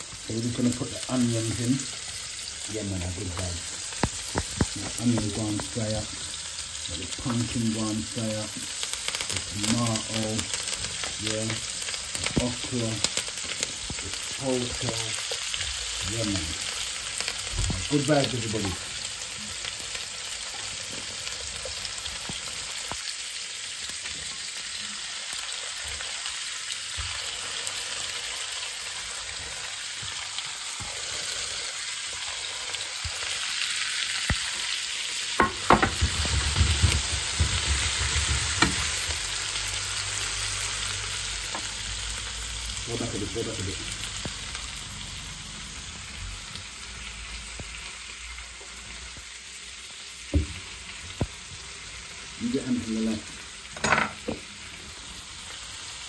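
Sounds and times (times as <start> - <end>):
vegetables sizzling in oil: 0.0 - 56.0
sharp clicks and knocks: 35.4 - 38.9.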